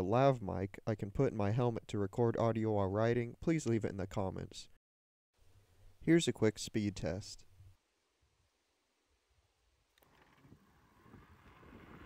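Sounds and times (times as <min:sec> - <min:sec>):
wind buffeting microphone: 0:10.5 - 0:12.0.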